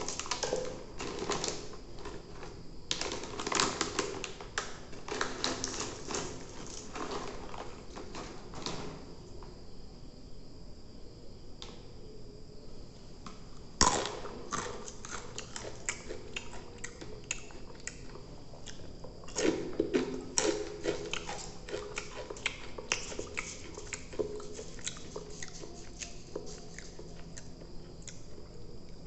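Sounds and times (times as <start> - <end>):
crunchy snack chewing: 13.7 - 29.0.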